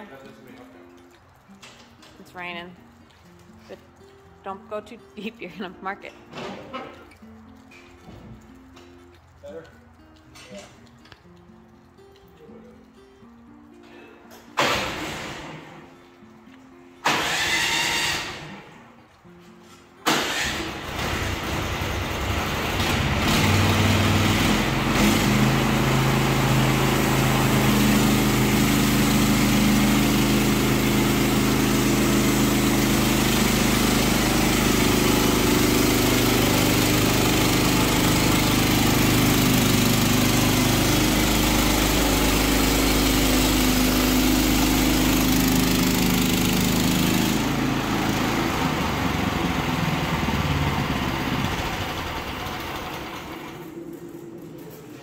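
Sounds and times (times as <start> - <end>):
sawmill engine running: 17.0 - 18.6, 20.1 - 54.2
band saw cutting log: 17.1 - 18.6, 20.1 - 53.6.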